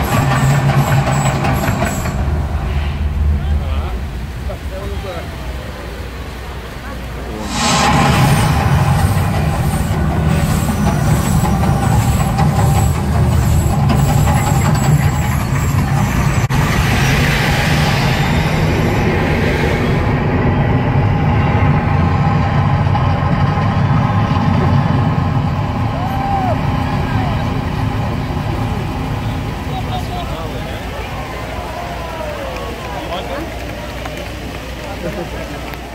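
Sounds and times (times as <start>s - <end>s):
deep steady rumble: 0.0s - 34.8s
gas flames bursting with a rush: 7.4s - 29.7s.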